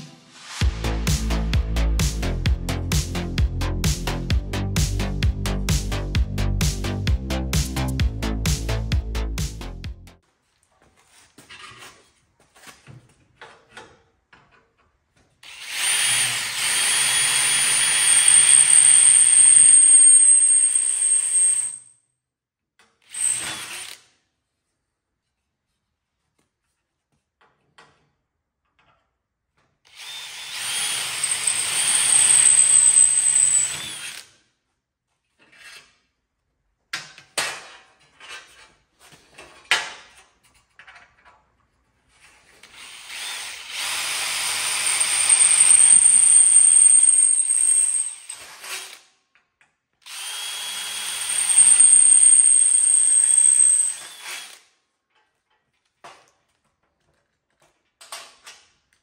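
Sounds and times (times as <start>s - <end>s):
drill whining through metal: 15.4s - 21.8s, 23.0s - 24.0s, 29.9s - 34.3s, 42.7s - 49.0s, 50.0s - 54.7s.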